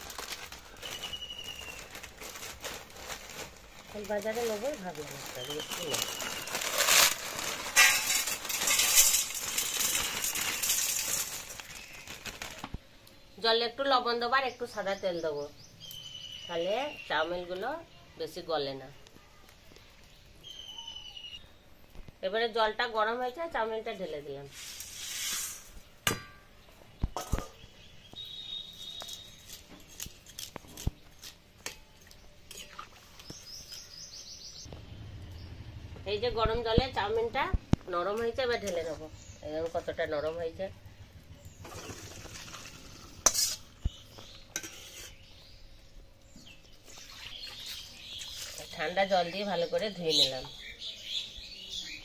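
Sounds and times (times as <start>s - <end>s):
plastic packet crinkling: 0.0s - 12.8s
bird chirping: 0.8s - 2.0s, 14.4s - 18.2s, 18.9s - 21.7s, 26.6s - 29.7s, 33.2s - 35.8s, 42.7s - 52.0s
dry noodles clattering into colander: 5.4s - 12.7s.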